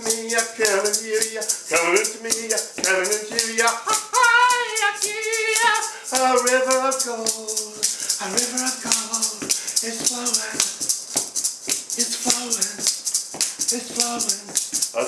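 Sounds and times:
man chanting a melody: 0:00.0 - 0:10.6, 0:13.7 - 0:15.0
maraca shaking: 0:00.0 - 0:15.0.

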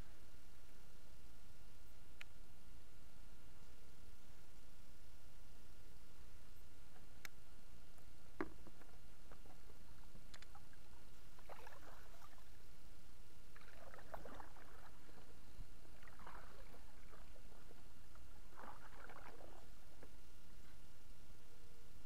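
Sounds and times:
kayak paddle splashing in water: 0:11.4 - 0:12.4, 0:13.6 - 0:15.3, 0:16.0 - 0:17.7, 0:18.5 - 0:19.7.

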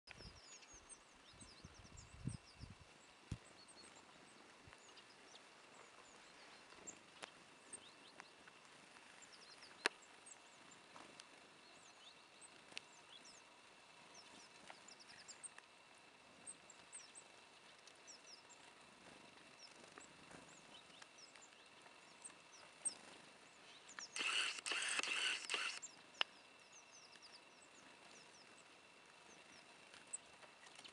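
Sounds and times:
small songbirds chirping: 0:00.1 - 0:30.9
sharp click: 0:24.0 - 0:26.3.

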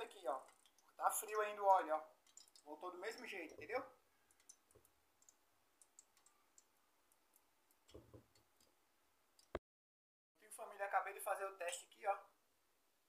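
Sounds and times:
faint clicks: 0:04.3 - 0:08.8.

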